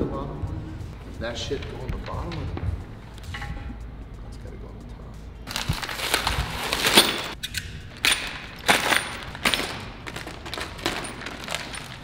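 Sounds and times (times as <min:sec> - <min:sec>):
plastic bag crinkling: 0:05.5 - 0:12.0.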